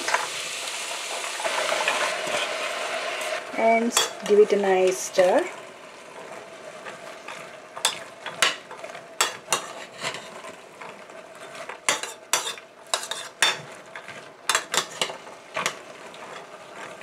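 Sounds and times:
metal spoon scraping metal pot: 0:09.2 - 0:10.4, 0:11.9 - 0:13.6.

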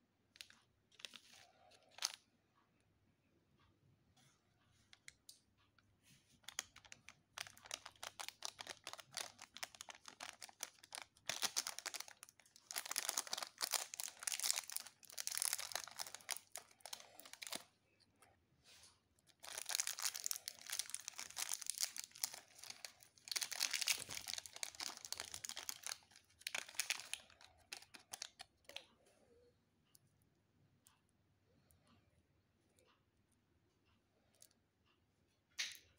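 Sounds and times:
foil wrapper crinkling and tearing: 0:06.4 - 0:17.7, 0:19.3 - 0:28.5.

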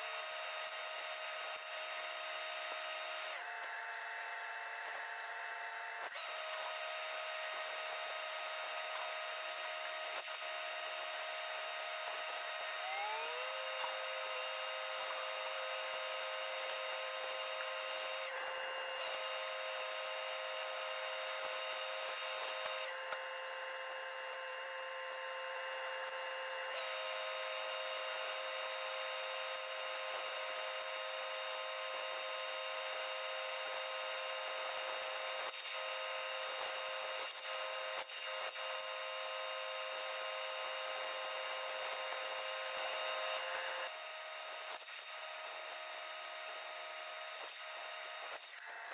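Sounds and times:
welding machine whine: 0:00.0 - 0:48.9
welding hiss: 0:25.7 - 0:44.0.

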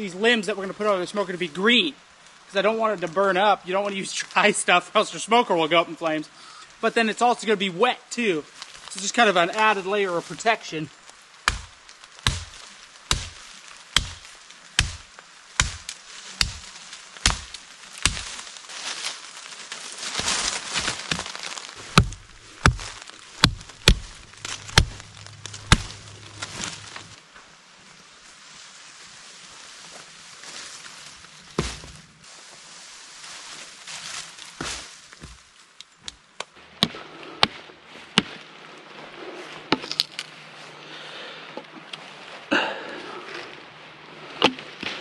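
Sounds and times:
rustling leaves and brush: 0:00.0 - 0:45.0
axe chopping wood: 0:11.4 - 0:18.4, 0:20.8 - 0:27.0, 0:31.6 - 0:32.0, 0:36.8 - 0:37.6, 0:38.2 - 0:38.4, 0:44.4 - 0:45.0.

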